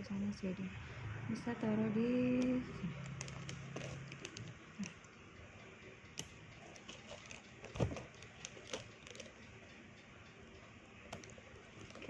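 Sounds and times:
handbag chain clicking: 3.0s - 5.0s, 6.6s - 9.4s.

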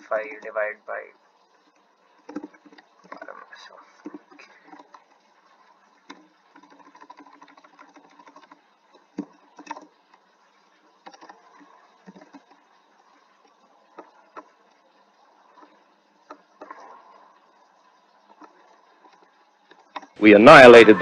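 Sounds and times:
faint steady hiss: 0.0s - 21.0s.

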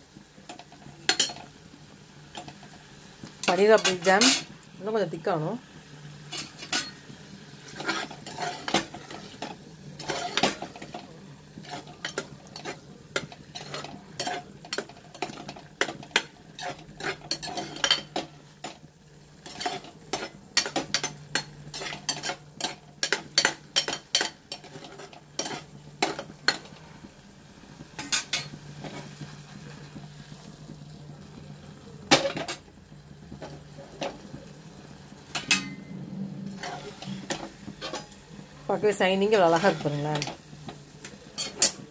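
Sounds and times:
ladle scraping and knocking pot: 7.6s - 18.8s, 19.4s - 26.7s, 36.5s - 38.2s, 41.4s - 41.9s.

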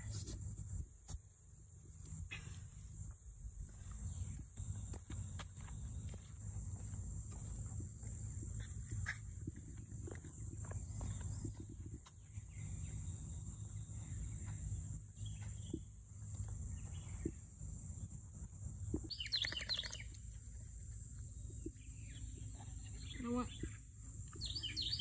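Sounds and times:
high-pitched insect hum: 0.0s - 25.0s
rapid bird chirping: 18.9s - 25.0s.

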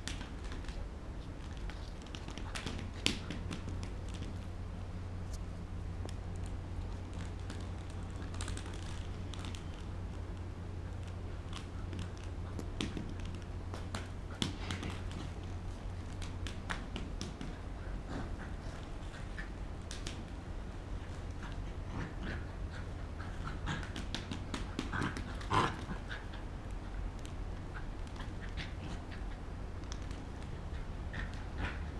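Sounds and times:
puppy noises: 10.8s - 31.9s.

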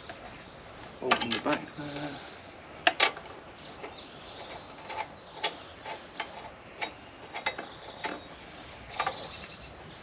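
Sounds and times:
birds chirping: 0.0s - 10.0s
metal parts clicking and tapping: 2.8s - 8.3s.

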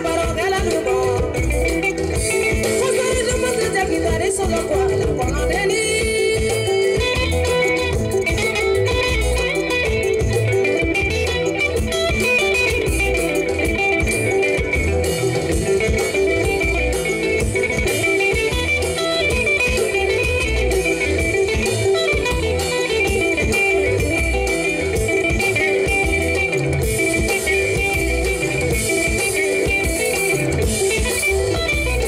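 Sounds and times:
bass: 0.0s - 32.0s
electric guitar: 0.0s - 32.0s
steady drum beat: 0.0s - 32.0s.

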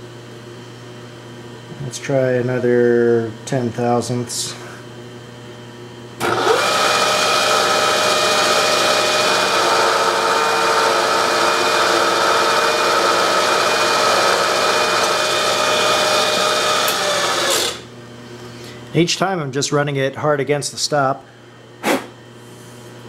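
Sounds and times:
milling machine spindle whine: 6.2s - 17.9s.

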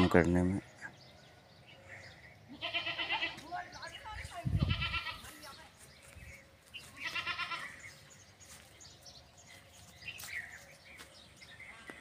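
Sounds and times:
goat bleating: 0.0s - 0.2s, 2.5s - 3.5s, 4.5s - 5.4s, 6.9s - 7.8s.

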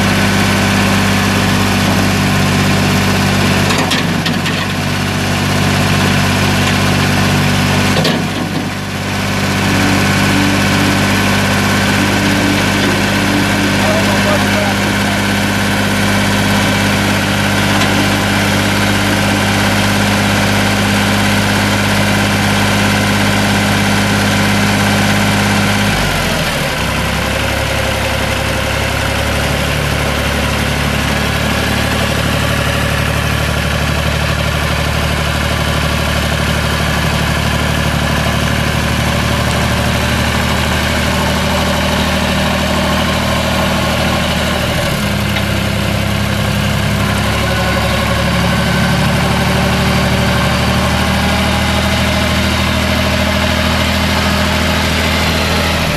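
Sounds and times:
tractor diesel engine running: 0.0s - 55.9s.

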